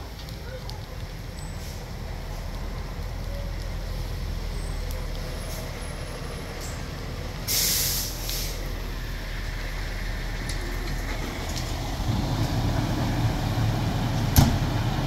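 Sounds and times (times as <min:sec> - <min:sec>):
low engine rumble: 0:00.0 - 0:15.0
hiss of escaping air: 0:07.4 - 0:08.8.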